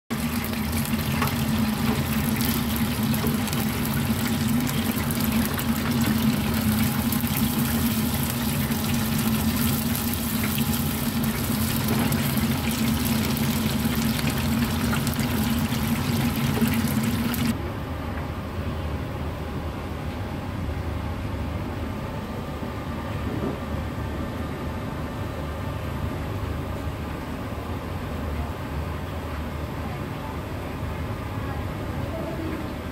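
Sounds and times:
oil sizzling and crackling: 0.1 - 17.6.

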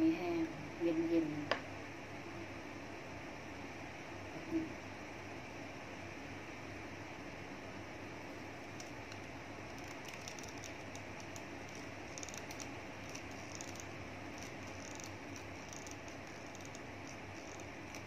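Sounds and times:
steady background hiss: 0.0 - 18.0
small ticks and scratches: 8.6 - 18.0.

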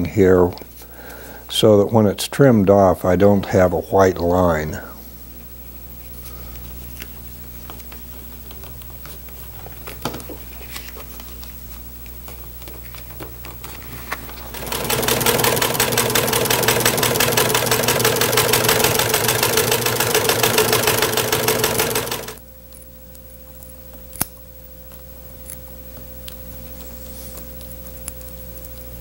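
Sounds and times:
faint steady hum: 0.0 - 29.0
sewing machine stitching: 14.4 - 22.4.

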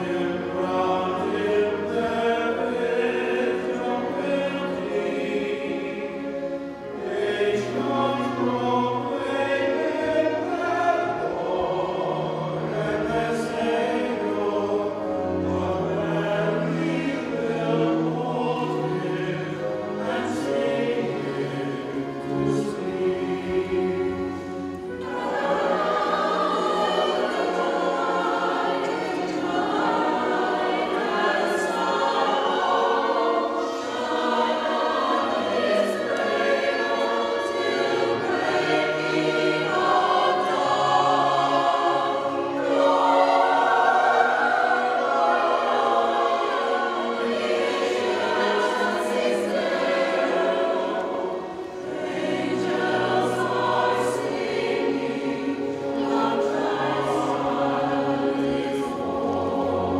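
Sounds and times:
mixed choir singing: 0.0 - 59.9
violins: 0.0 - 59.9.

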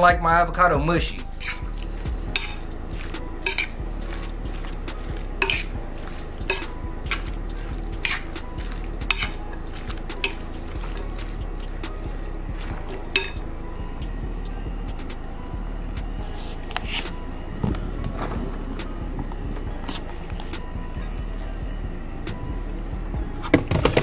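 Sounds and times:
soft squelch of wet mix: 1.2 - 14.0, 16.2 - 23.5
spoon clinking against glass: 2.3 - 7.3, 12.6 - 13.4.

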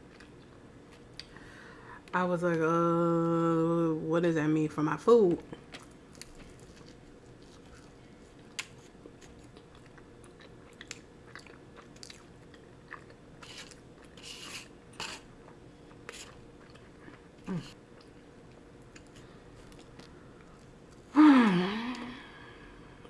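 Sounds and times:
person chewing pastry: 0.0 - 1.4, 5.5 - 21.1.

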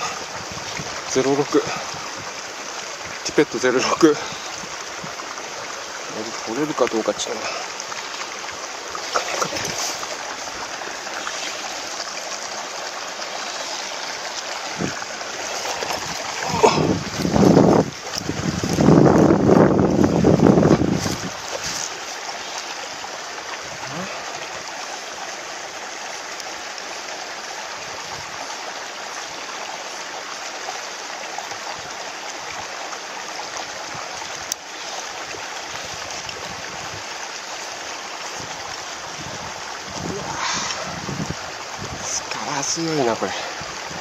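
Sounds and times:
running water rushing: 0.0 - 44.0.

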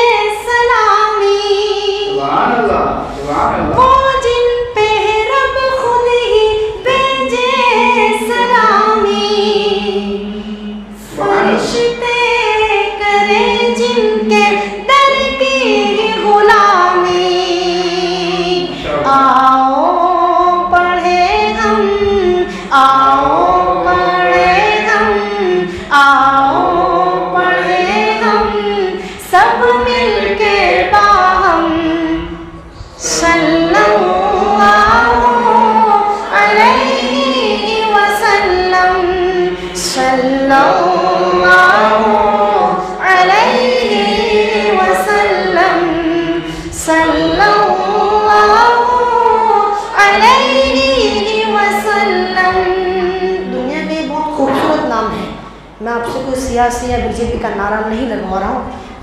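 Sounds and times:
man singing unaccompanied: 7.4 - 12.0, 15.2 - 19.6, 33.0 - 48.5.

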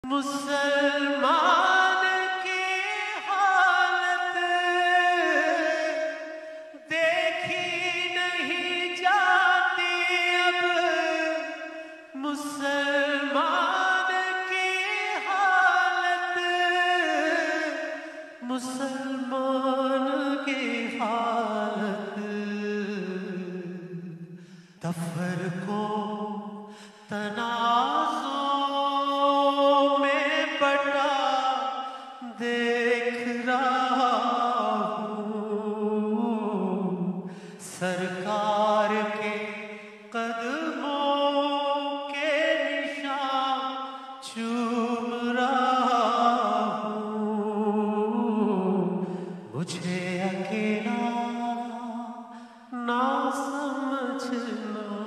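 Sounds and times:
man singing devotional song: 0.0 - 55.0.

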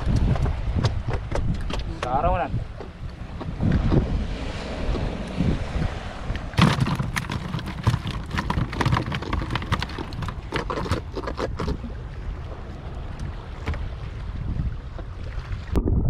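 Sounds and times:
sea rumble: 0.0 - 16.0
wind: 0.0 - 16.0
fish flapping in plastic basket: 6.6 - 11.7.

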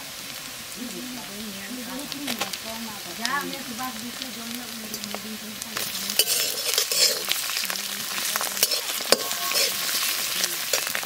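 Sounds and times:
food sizzling in hot oil: 0.0 - 11.0
spatula scraping a wok: 4.9 - 11.0.

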